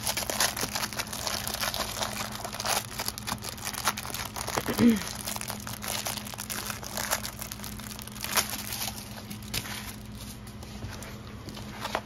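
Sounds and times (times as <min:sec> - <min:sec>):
plastic covering crinkling: 0:00.0 - 0:12.0.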